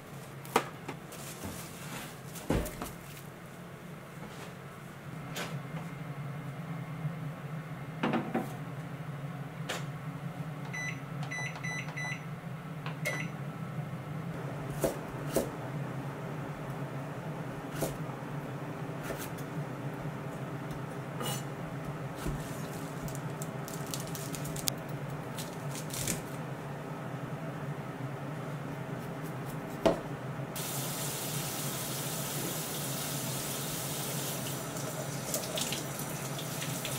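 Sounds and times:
knife chopping on cutting board: 14.7 - 15.6, 17.7 - 18.0, 29.0 - 30.1.

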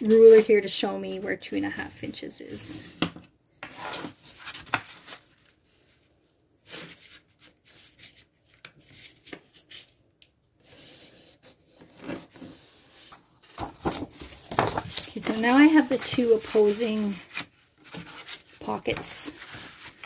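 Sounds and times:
cardstock rustling and sliding: 10.6 - 20.0
hands rubbing paper fold: 12.3 - 20.0.

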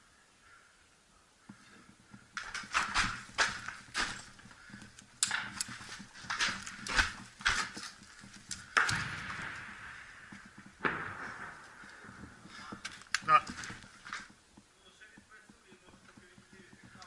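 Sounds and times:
loud bangs trailing off: 8.7 - 12.8
sharp gunshots: 8.8 - 11.9.

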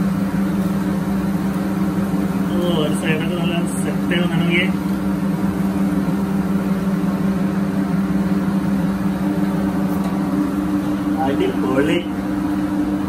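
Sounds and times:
kitchen equipment hum: 0.0 - 13.0.

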